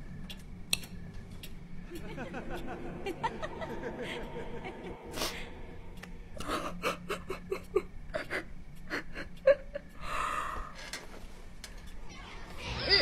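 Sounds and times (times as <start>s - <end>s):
woman sobbing: 6.4s - 10.2s.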